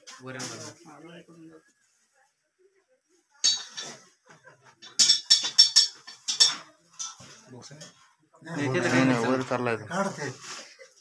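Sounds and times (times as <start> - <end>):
kitchen vessels clinking: 3.4 - 8.0.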